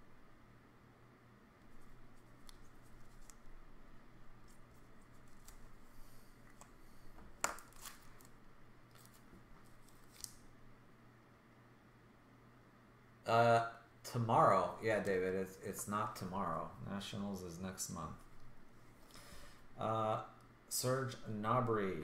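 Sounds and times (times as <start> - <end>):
hands handling cards and packs: 1.7 - 3.6, 4.3 - 10.4.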